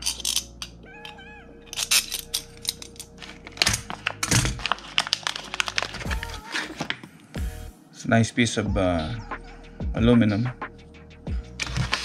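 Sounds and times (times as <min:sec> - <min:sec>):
plastic bag crinkling: 0:01.7 - 0:07.3.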